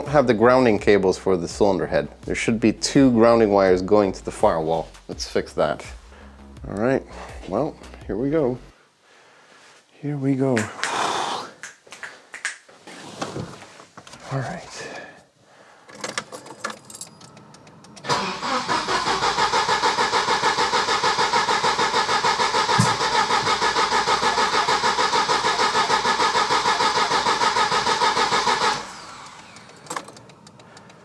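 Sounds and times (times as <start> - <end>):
car engine cranking: 15.9 - 31.0.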